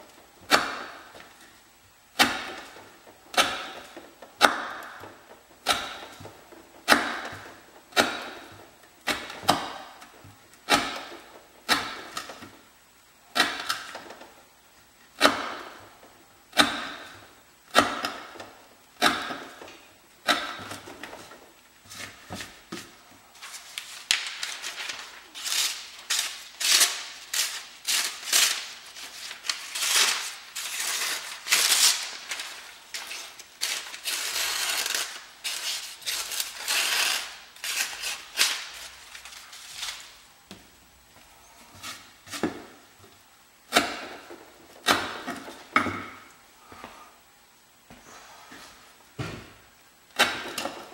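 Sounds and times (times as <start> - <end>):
paper rustling and slicing: 22.0 - 37.0.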